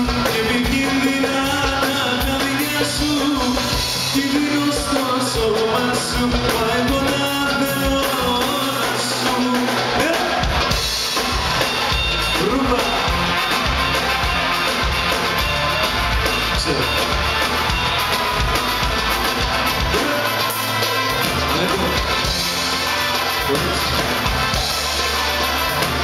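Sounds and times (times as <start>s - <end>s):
man singing: 0.0s - 10.5s, 12.4s - 13.1s, 19.9s - 20.5s
live band music: 0.0s - 26.0s.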